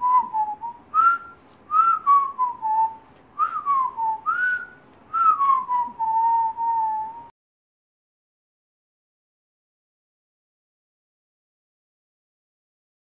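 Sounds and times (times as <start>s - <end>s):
man whistling a tune: 0.0s - 7.3s.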